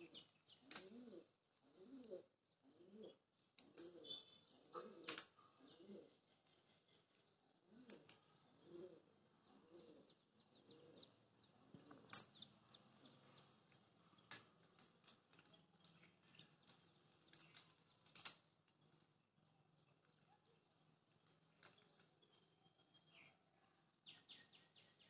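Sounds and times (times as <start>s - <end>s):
faint dove cooing: 0.0s - 14.5s
small birds chirping: 0.0s - 25.0s.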